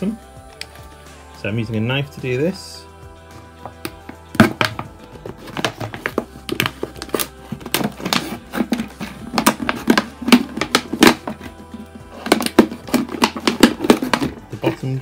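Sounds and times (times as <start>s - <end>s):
knife cutting plastic bottle: 3.8s - 14.9s.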